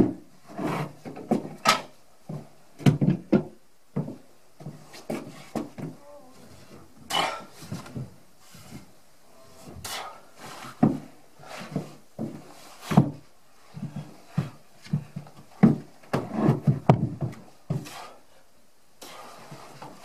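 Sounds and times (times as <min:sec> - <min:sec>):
log knocking and scraping on logs: 0:00.0 - 0:06.0, 0:10.6 - 0:18.0.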